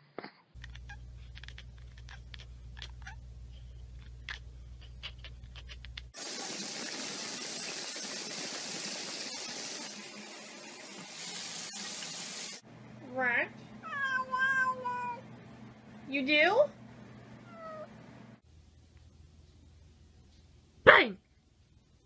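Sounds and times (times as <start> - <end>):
steady low hum: 0.6 - 6.1
tap water running into bathtub: 6.2 - 12.6.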